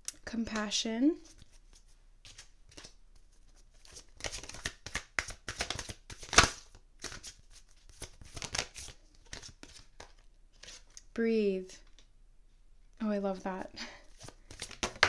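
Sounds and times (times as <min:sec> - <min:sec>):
cards being shuffled: 0:01.2 - 0:11.0, 0:14.1 - 0:15.0.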